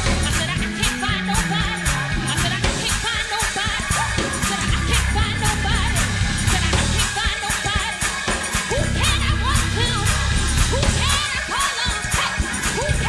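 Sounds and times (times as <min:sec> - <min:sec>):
bass notes: 0:00.0 - 0:07.2, 0:08.7 - 0:11.4, 0:12.7 - 0:13.0
drum beat: 0:00.0 - 0:13.0
group singing: 0:00.0 - 0:13.0
live band: 0:00.0 - 0:13.0.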